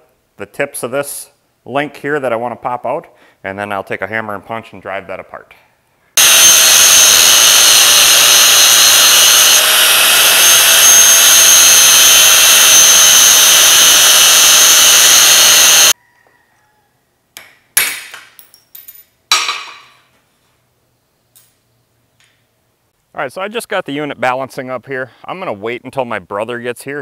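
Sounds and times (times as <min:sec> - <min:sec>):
angle grinder whining: 0:06.2 - 0:16.0.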